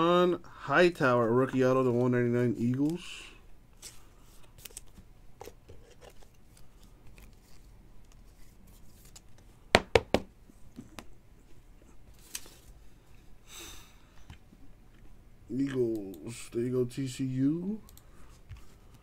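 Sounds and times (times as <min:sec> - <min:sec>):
cards rustling and sliding: 0:03.8 - 0:09.6, 0:12.1 - 0:12.8.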